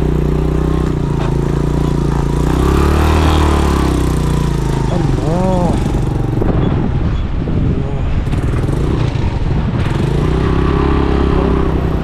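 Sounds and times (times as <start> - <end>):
motorcycle engine running at low speed: 0.0 - 12.0.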